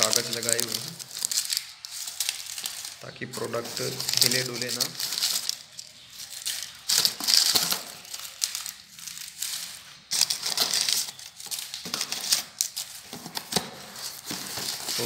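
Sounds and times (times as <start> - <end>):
crumpled paper rustling: 0.0 - 15.0.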